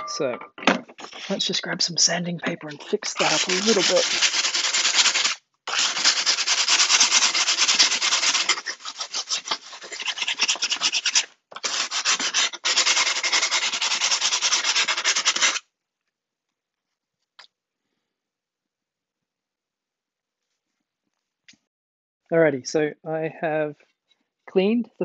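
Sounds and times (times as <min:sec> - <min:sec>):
sandpaper rasping on glass edge: 0:02.8 - 0:15.6.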